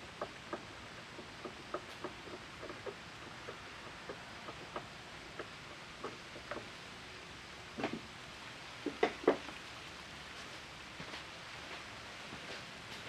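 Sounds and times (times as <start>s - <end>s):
steady hiss: 0.0s - 13.0s
small tools clicking and tapping: 0.1s - 6.7s, 8.8s - 9.6s.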